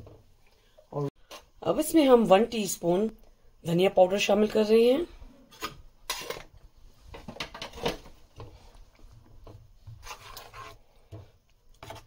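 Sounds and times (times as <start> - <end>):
spoon scraping metal pan: 9.9 - 10.8.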